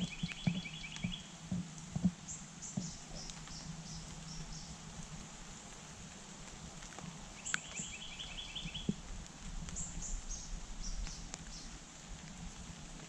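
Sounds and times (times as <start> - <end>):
bird chirping: 0.0 - 1.4, 2.3 - 4.7, 7.4 - 9.0.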